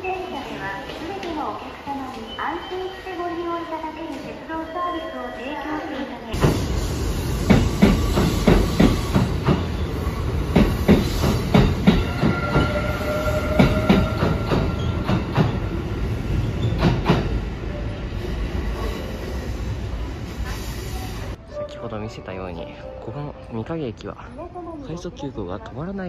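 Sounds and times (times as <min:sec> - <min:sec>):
train wheels clacking over rail joints: 0:10.5 - 0:12.8.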